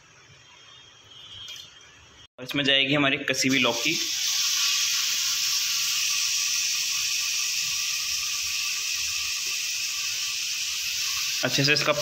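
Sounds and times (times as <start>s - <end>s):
vegetables sizzling in hot fat: 3.4s - 12.0s.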